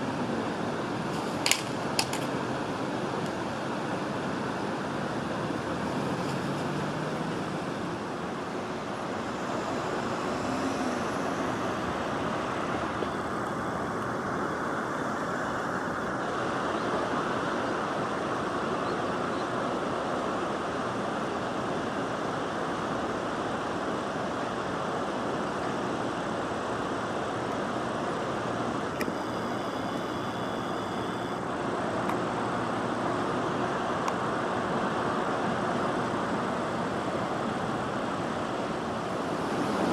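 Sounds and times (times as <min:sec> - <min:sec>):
steady outdoor rushing noise: 0:00.0 - 0:39.9
faint higher tones: 0:29.0 - 0:31.5.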